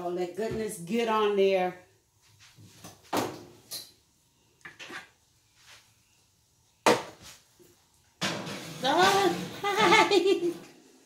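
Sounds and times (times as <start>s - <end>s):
baking dish scraping and knocking: 8.2s - 10.0s.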